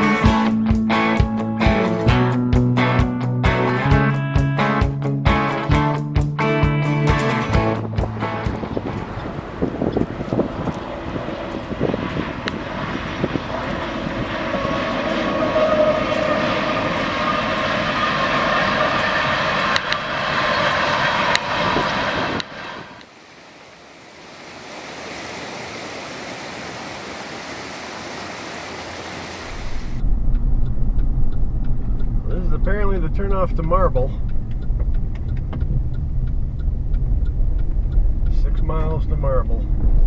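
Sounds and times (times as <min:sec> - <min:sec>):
diesel locomotives passing: 0:00.0 - 0:40.0
vehicle low rumble: 0:00.0 - 0:40.0
hiss: 0:23.0 - 0:30.0
sharp clicks: 0:34.2 - 0:38.2.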